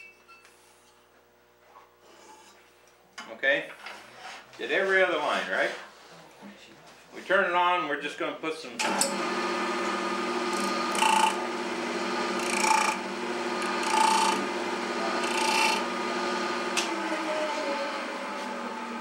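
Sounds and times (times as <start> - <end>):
wood lathe motor hum: 8.8 - 19.0.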